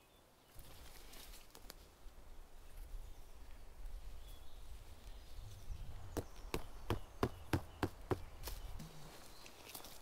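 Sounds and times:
tent stake being knocked: 0:06.2 - 0:08.9.

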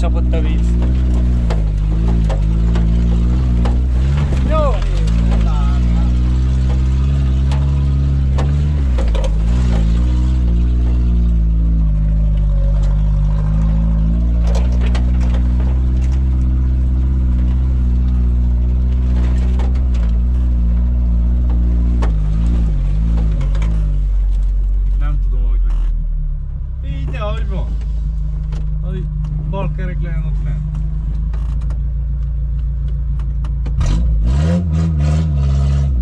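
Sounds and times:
vehicle knocking over rough ground: 0:00.0 - 0:24.0
engine running under load: 0:00.0 - 0:24.4.

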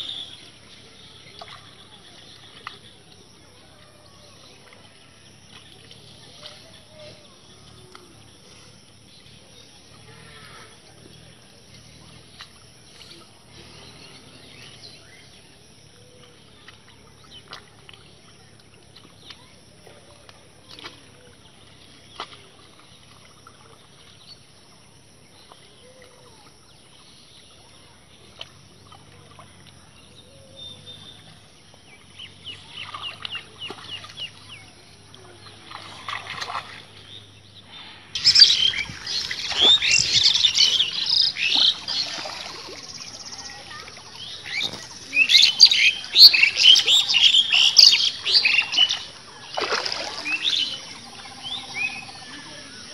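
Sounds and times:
feet wading through shallow water: 0:00.0 - 0:52.9
water and mud sloshing: 0:00.0 - 0:52.9
bird calls: 0:32.2 - 0:52.9.

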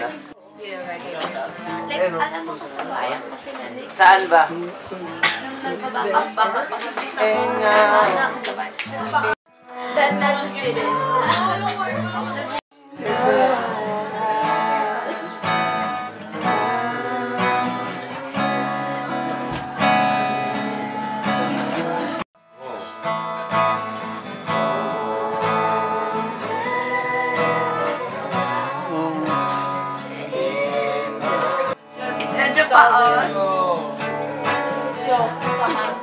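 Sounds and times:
acoustic guitars strummed: 0:00.0 - 0:03.5, 0:04.2 - 0:36.0
person singing: 0:07.2 - 0:22.2, 0:24.4 - 0:36.0.

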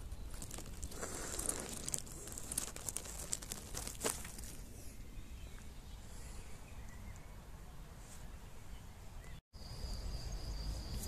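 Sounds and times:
grass and leaves rustling: 0:00.0 - 0:05.7.

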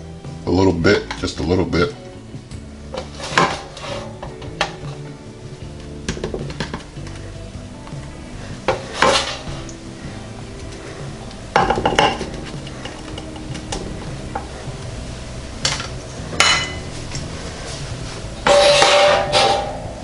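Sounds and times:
spatula scraping baking pan: 0:02.9 - 0:04.8, 0:08.7 - 0:09.6, 0:18.4 - 0:19.8.

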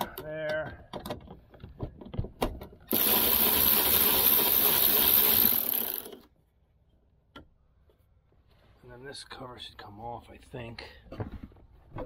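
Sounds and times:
power ratchet spinning socket: 0:02.9 - 0:06.3.

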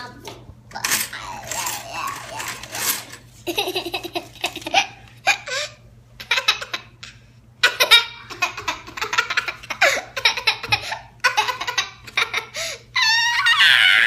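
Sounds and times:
girl laughing: 0:03.4 - 0:14.0.

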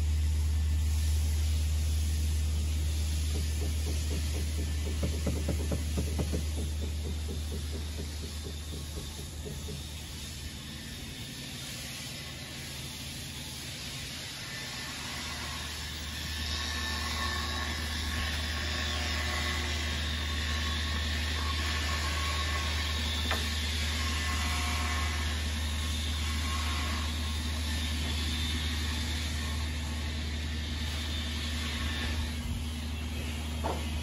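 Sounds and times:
machine humming: 0:02.1 - 0:11.1.

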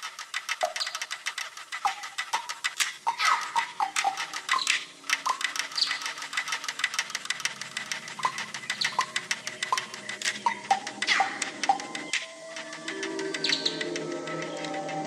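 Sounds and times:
clicking and ticking percussion: 0:00.0 - 0:15.0.

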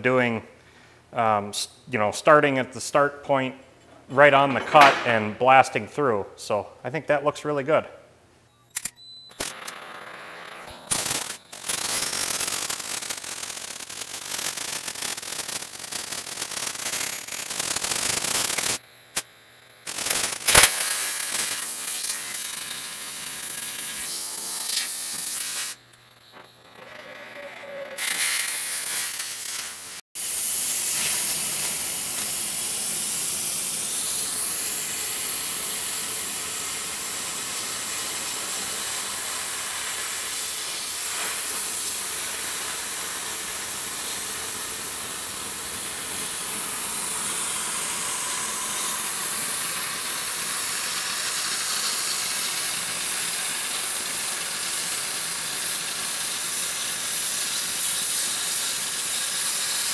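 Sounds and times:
cutting torch hissing: 0:10.7 - 0:19.2, 0:19.8 - 0:25.8, 0:28.0 - 0:59.9.

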